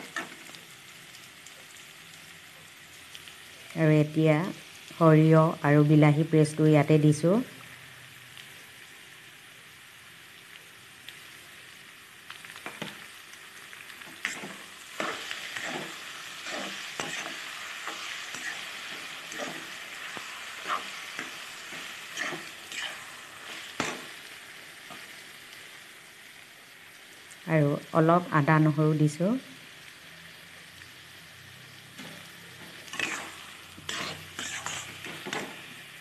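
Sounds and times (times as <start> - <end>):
food sizzling in a wok: 0.0 - 36.0
metal spatula scraping pan: 14.2 - 19.9, 20.6 - 24.1, 32.0 - 35.6.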